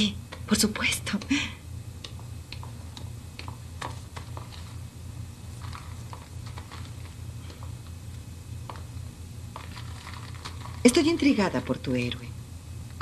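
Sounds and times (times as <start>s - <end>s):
tv soundtrack hum: 0.0s - 13.0s
paper pages rustling: 2.6s - 4.9s, 5.5s - 8.9s, 9.5s - 11.3s.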